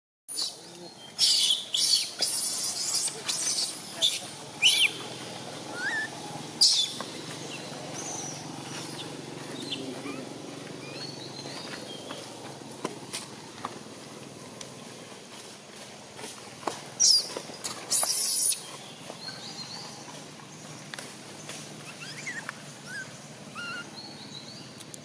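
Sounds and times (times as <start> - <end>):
infant monkey screaming: 1.2 - 7.0, 8.0 - 11.0, 17.9 - 18.7, 21.8 - 24.0.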